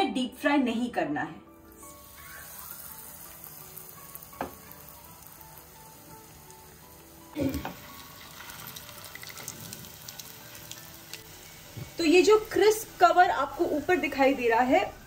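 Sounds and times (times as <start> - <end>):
patties sizzling in oil: 1.6 - 15.0
knocks on a pan: 4.4 - 4.6.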